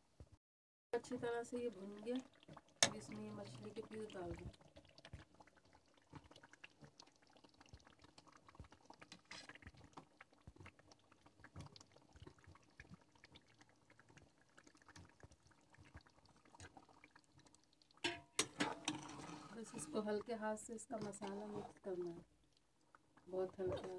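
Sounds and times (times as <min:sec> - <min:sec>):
curry bubbling with pops: 0:01.0 - 0:23.9
spoon clinks and plops: 0:18.0 - 0:18.6.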